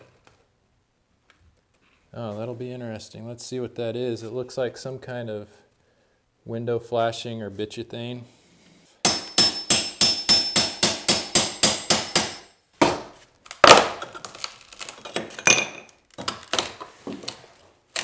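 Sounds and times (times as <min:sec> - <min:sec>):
hammer striking steel pry bar: 0:09.0 - 0:13.1.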